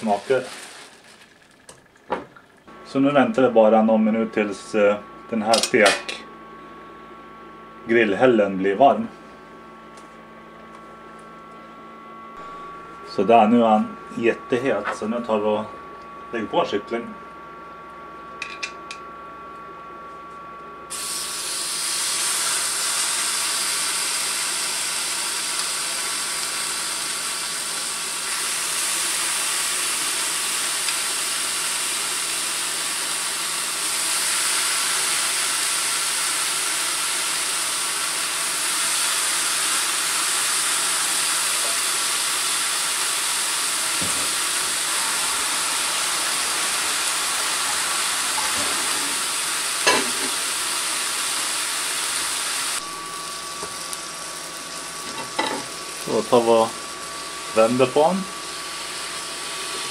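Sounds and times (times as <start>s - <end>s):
chicken sizzling on griddle: 0.0s - 1.2s, 20.9s - 59.9s.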